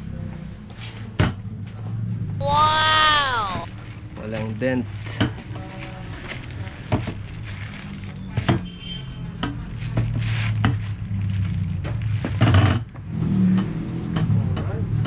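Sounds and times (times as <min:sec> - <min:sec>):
plastic wrap crinkling underfoot: 0:03.4 - 0:13.0.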